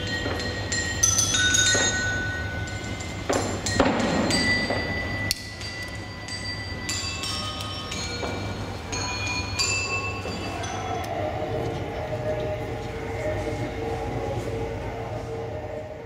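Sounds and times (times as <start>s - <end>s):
bell-like struck metal tones: 0.0s - 11.7s
steady low hum: 0.0s - 16.0s.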